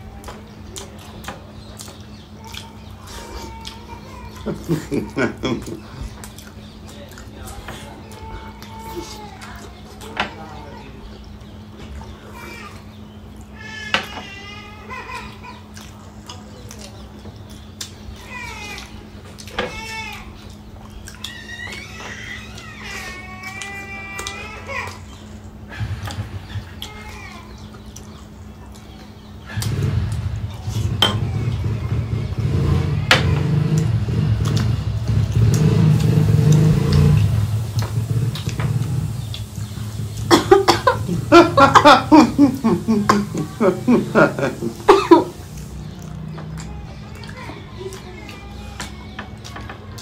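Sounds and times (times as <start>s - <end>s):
steady low hum: 0.0s - 49.5s
animal crying: 18.2s - 28.3s, 39.8s - 45.5s
vehicle engine running: 29.5s - 41.6s.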